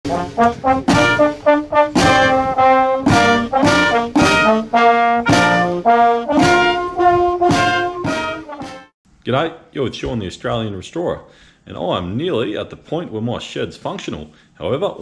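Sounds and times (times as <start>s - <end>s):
brass instruments playing a tune: 0.0s - 8.9s.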